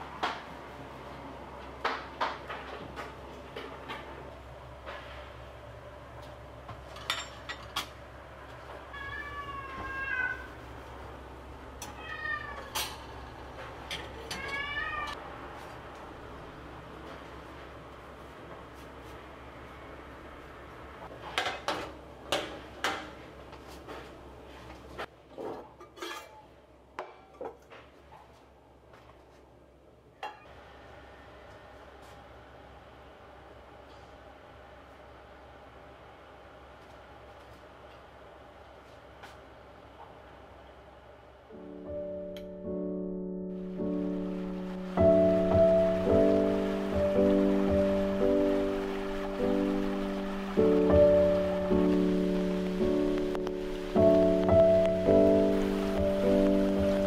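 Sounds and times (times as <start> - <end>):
cat meowing: 8.8 - 10.6, 11.8 - 13.2, 14.2 - 15.2
clicks and knocks of kitchen parts: 21.2 - 23.2.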